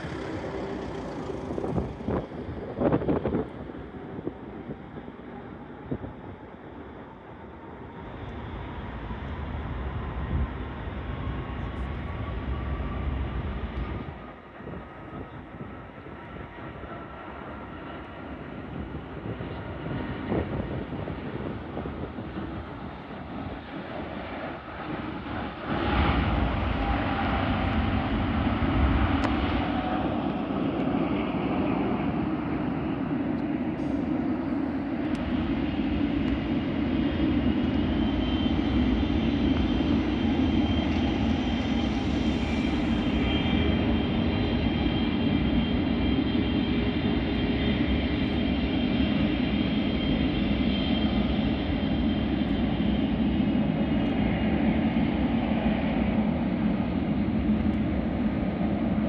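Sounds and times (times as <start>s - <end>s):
distant jet engines rumbling: 0.0s - 59.0s
jet engine whine: 0.0s - 59.0s.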